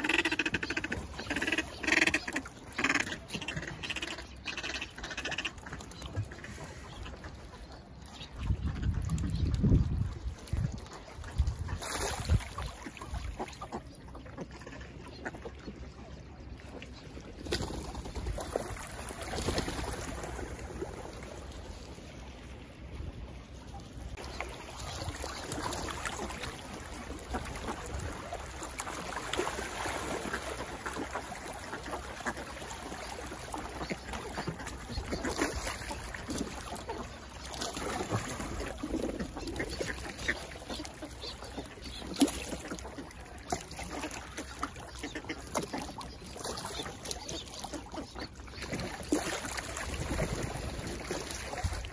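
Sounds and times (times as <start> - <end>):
duck calls: 0.0 - 6.7
water splashing: 0.0 - 51.9.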